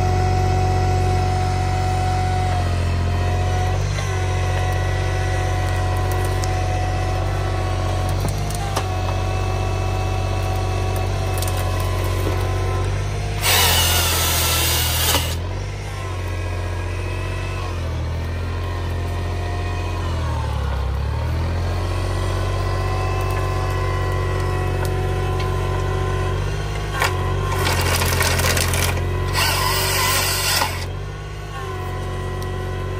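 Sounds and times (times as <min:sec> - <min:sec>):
engine running under load: 0:00.0 - 0:32.9
saw rasping through log: 0:13.3 - 0:15.4, 0:28.8 - 0:30.9.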